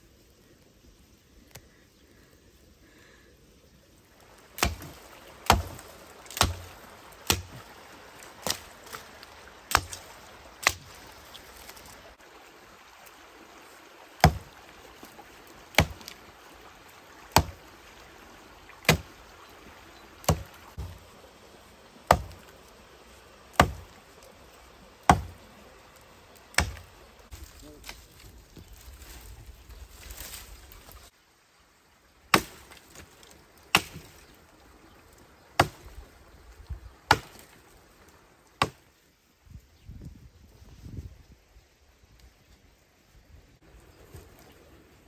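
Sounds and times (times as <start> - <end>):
heavy chopping blows: 4.5 - 7.6.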